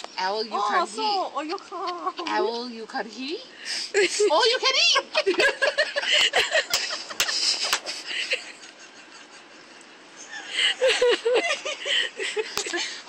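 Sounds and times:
voices: 0.0s - 8.8s
people laughing breathily: 5.2s - 13.0s.

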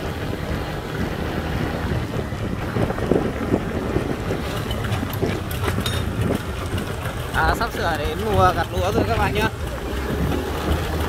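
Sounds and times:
diesel engine chugging: 0.0s - 11.0s
wind buffeting microphone: 0.0s - 11.0s
sharp clicks and rattles: 4.4s - 11.0s.

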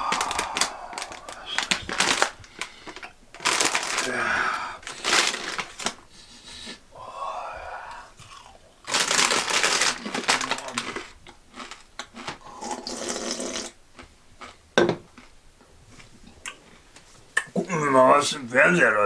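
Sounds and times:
chips crunched and chewed: 0.0s - 4.2s, 4.9s - 6.0s, 8.2s - 12.4s.

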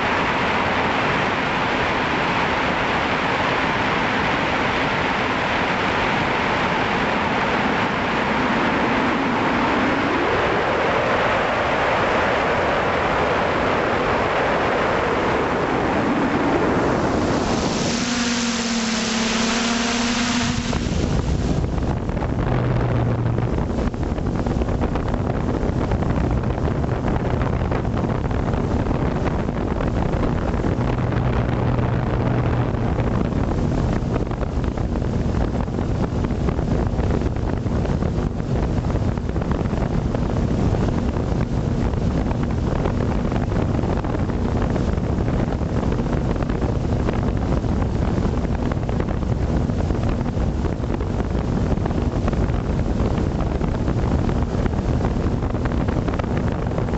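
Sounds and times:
wind on microphone: 0.0s - 56.9s
drone motors humming: 16.1s - 35.4s.

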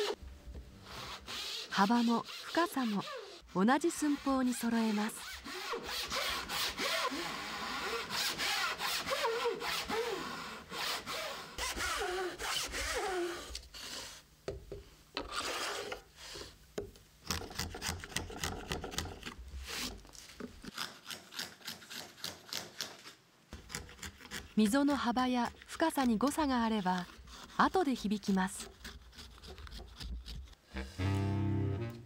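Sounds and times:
hand saw rasping through wood: 0.9s - 3.4s, 4.0s - 13.4s, 28.6s - 30.5s.

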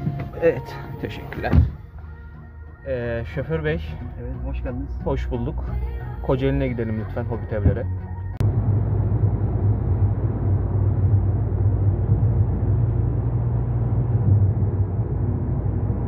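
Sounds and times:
car interior engine and road noise: 5.2s - 16.0s.

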